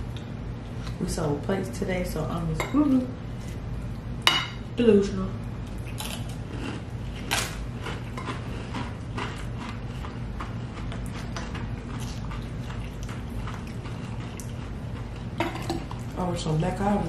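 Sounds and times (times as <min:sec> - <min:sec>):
steady low hum: 0:00.0 - 0:17.0
eating clicks and crunches: 0:05.6 - 0:16.2.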